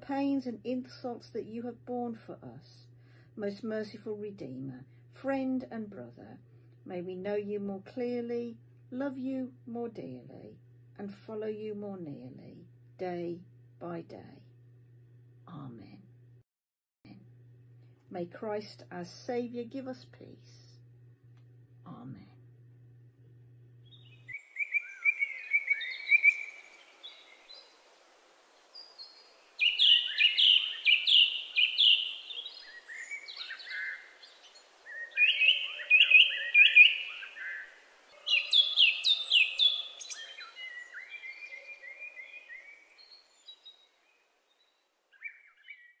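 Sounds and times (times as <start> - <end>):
birdsong chirps and trills: 23.8 - 46.0.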